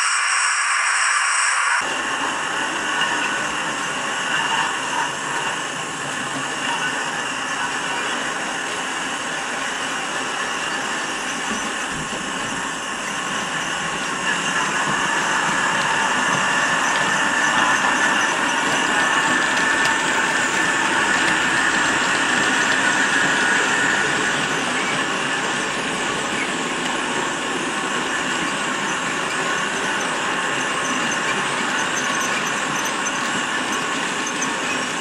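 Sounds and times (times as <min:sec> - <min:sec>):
model train wheels rattling on track: 0:01.8 - 0:35.0.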